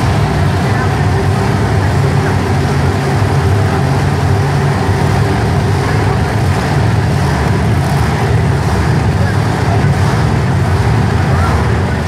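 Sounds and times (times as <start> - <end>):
monster truck engine running: 0.0 - 12.0.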